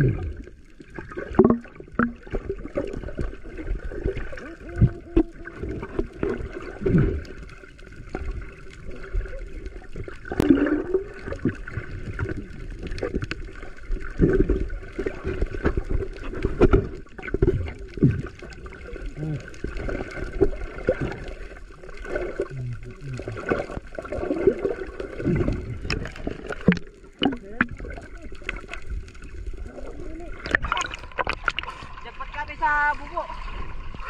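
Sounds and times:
underwater knocks and thuds: 0:00.0 - 0:07.4, 0:09.9 - 0:18.7, 0:22.2 - 0:29.1, 0:30.4 - 0:31.8
underwater gurgling and bubbling: 0:00.0 - 0:34.0.

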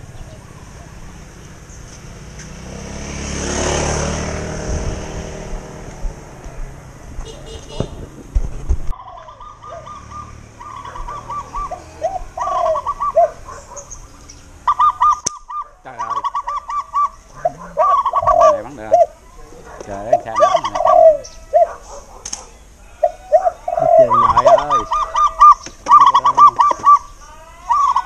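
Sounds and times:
birds calling: 0:00.0 - 0:08.3, 0:08.9 - 0:28.0.

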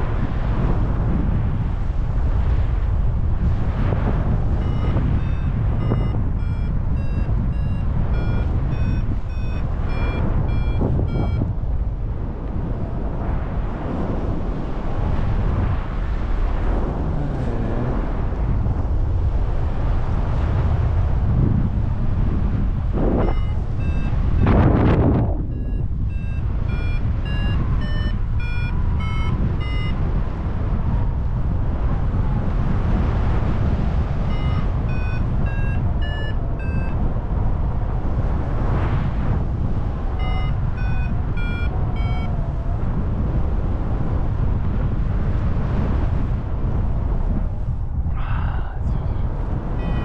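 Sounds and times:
wind noise on microphone: 0:00.0 - 0:50.0
variometer beeping: 0:04.4 - 0:11.9, 0:22.9 - 0:30.6, 0:34.0 - 0:37.2, 0:39.9 - 0:42.6, 0:49.8 - 0:50.0.

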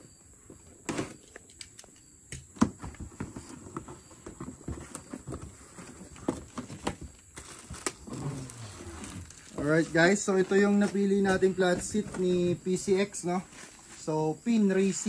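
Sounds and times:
cardboard box being opened: 0:02.6 - 0:12.7.

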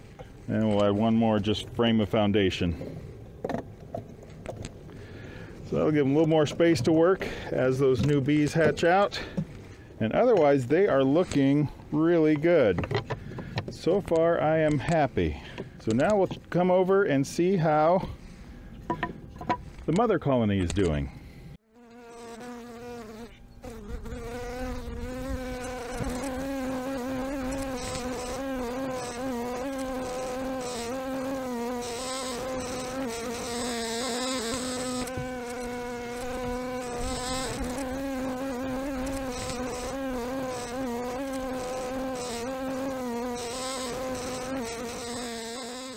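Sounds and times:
honeybees buzzing: 0:21.6 - 0:45.9.

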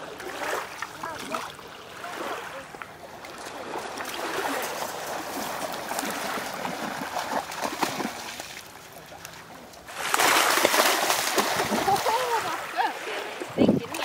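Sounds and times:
dog splashing through water: 0:03.5 - 0:12.7.

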